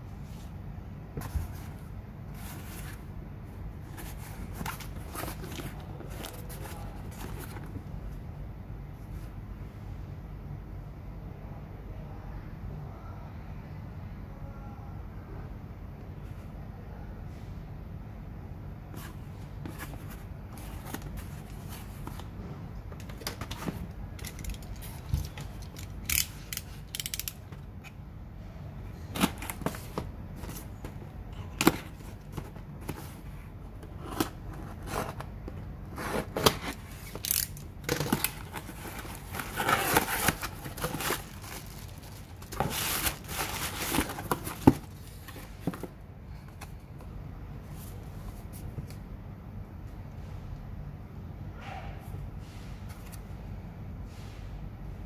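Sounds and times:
cardboard and tape crackling: 33.9s - 45.9s
cardboard scraping and tearing: 35.9s - 45.9s.

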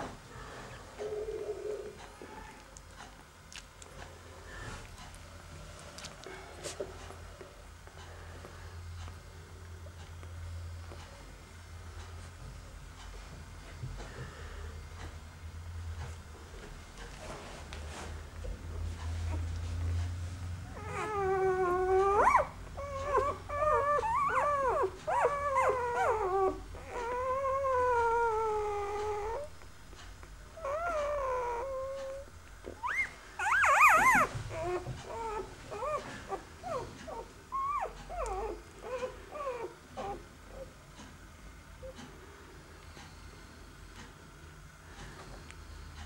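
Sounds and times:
puppies whimpering and crying: 20.6s - 29.7s, 30.5s - 40.8s.

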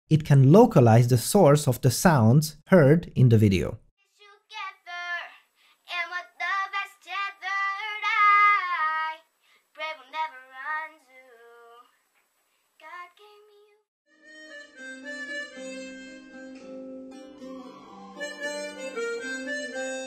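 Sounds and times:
boy singing unaccompanied: 4.1s - 11.9s, 12.8s - 13.8s.

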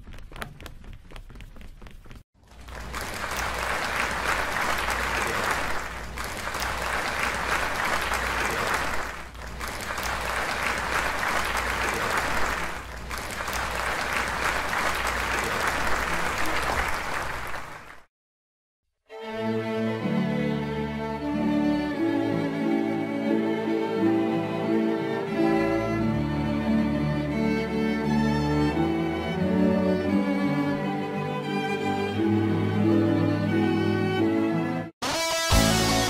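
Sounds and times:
audience applauding: 2.4s - 18.1s.

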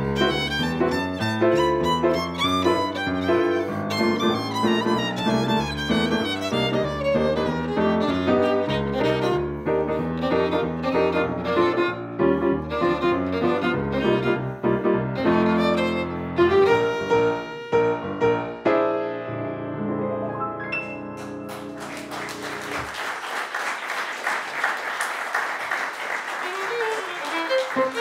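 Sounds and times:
jazz violin: 0.0s - 18.7s, 26.4s - 28.0s
piano: 0.0s - 28.0s
applause: 21.2s - 28.0s.

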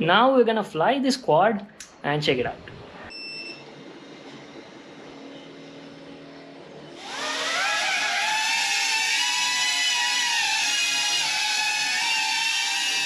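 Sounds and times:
drone motors whining: 6.9s - 13.0s.

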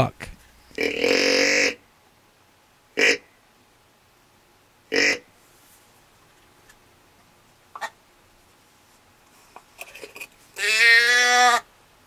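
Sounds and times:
deer call bleat: 0.8s - 1.8s, 4.9s - 5.2s, 10.6s - 11.7s.

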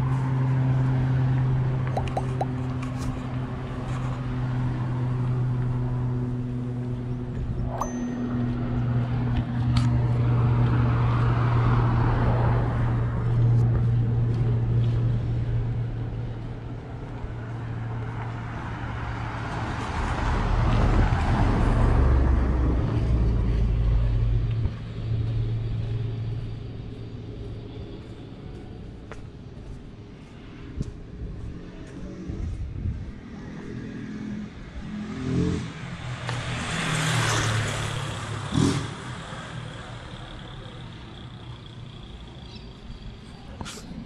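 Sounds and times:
steady low engine hum: 0.0s - 19.4s, 22.1s - 33.8s, 39.1s - 44.0s
cars passing close by: 0.0s - 28.7s, 30.1s - 44.0s.

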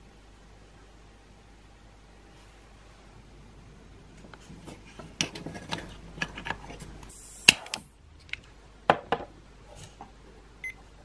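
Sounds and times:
short hiss: 7.1s - 7.9s.

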